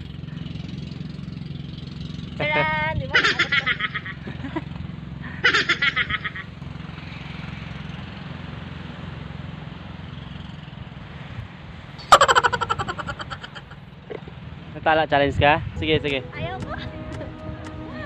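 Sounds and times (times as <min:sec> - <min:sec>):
low engine-like hum: 0:00.0 - 0:18.0
people laughing: 0:03.1 - 0:04.7, 0:05.3 - 0:06.4, 0:12.1 - 0:13.8.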